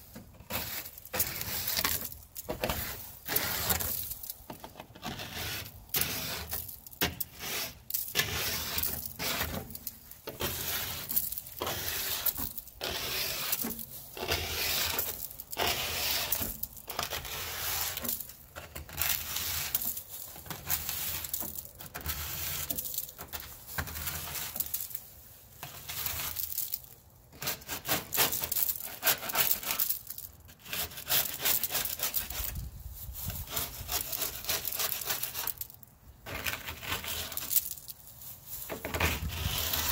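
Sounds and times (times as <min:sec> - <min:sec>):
scraper rasping shells off metal: 0:00.4 - 0:04.2, 0:05.0 - 0:24.8, 0:27.3 - 0:32.6, 0:33.4 - 0:35.6
shells crunching: 0:34.0 - 0:38.8.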